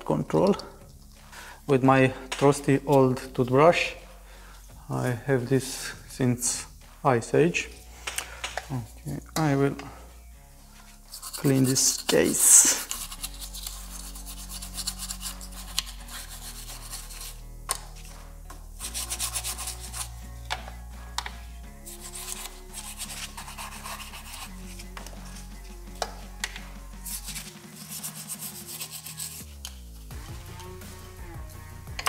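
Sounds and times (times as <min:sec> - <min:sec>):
toothbrush scrubbing plastic: 0:11.1 - 0:17.4, 0:18.8 - 0:20.1, 0:21.8 - 0:26.1, 0:27.0 - 0:29.6.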